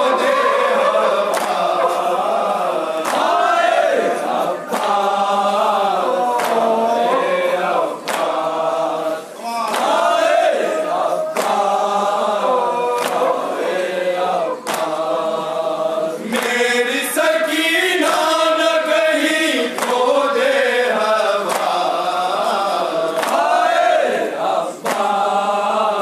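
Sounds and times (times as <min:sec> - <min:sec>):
men chanting in unison: 0:00.0 - 0:26.0
man reciting into a microphone: 0:04.1 - 0:23.6.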